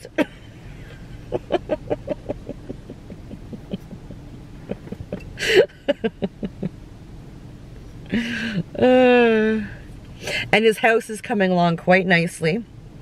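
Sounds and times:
woman laughing: 0.0s - 6.7s, 8.1s - 9.3s.

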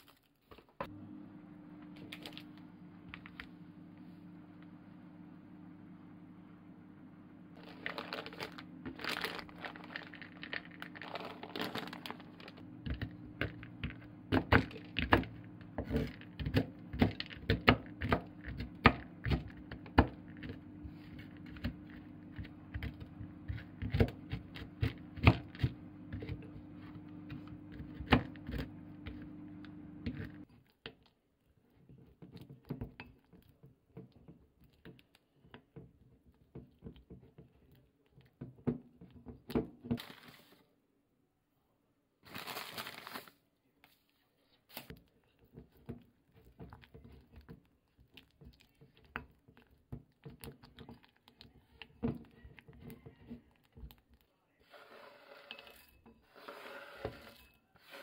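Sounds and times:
low steady hum: 0.8s - 30.6s
plastic snack bag crinkling: 7.6s - 13.8s, 42.2s - 43.5s
spoon mixing paste in glass bowl: 12.6s - 30.9s, 45.0s - 58.0s.

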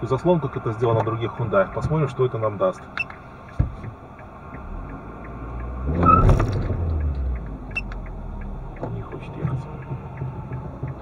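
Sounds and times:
car engine revving: 3.2s - 11.0s.

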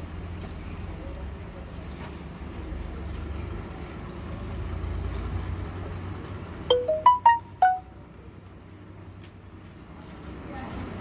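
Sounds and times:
short rising and falling chime: 6.7s - 7.9s.

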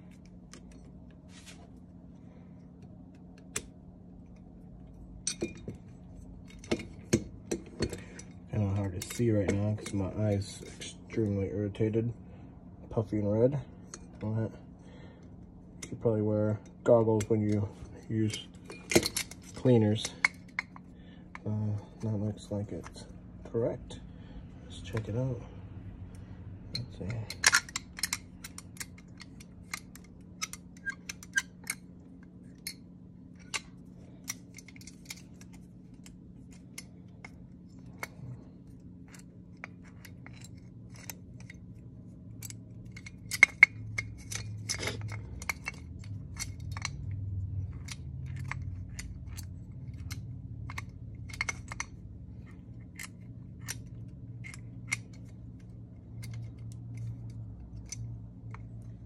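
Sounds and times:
steady low hum: 0.0s - 59.0s
small metal parts clinking: 3.4s - 10.9s, 15.8s - 23.1s, 26.6s - 59.0s.

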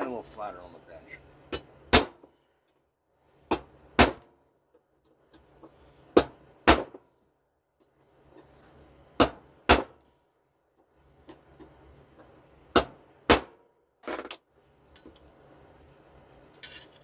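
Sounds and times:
hammer striking steel punch: 1.5s - 2.3s, 3.5s - 4.3s, 6.1s - 7.0s, 9.2s - 10.0s, 12.7s - 13.6s.

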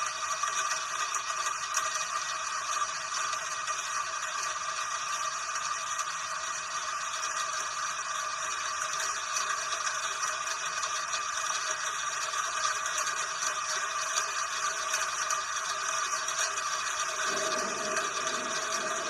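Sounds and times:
steady rain: 17.0s - 19.0s.

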